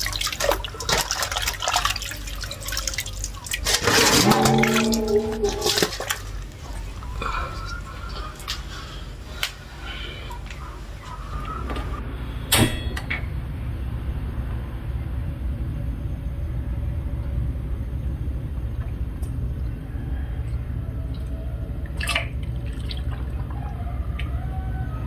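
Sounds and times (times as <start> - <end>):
gas burner low rumble: 6.2 - 22.5.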